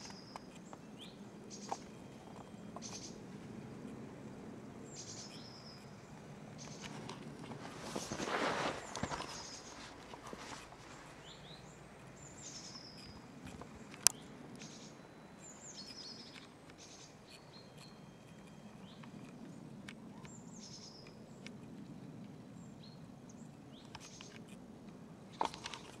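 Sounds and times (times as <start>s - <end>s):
faint low rumble: 0.0s - 26.0s
small birds chirping: 0.0s - 26.0s.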